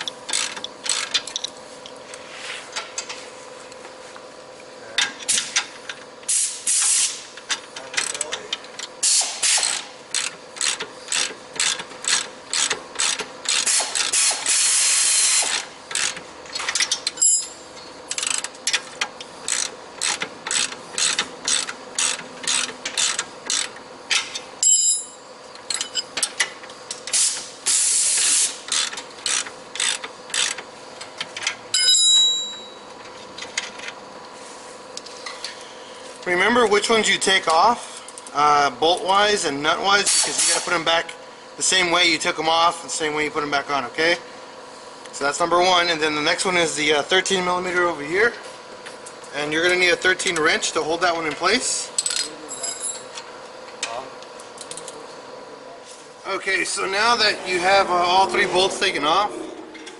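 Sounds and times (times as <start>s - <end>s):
ratcheting wrench clicking: 0.0s - 1.5s, 7.4s - 17.4s, 18.1s - 24.8s, 28.1s - 30.6s
ringing metal clink: 24.6s - 25.2s.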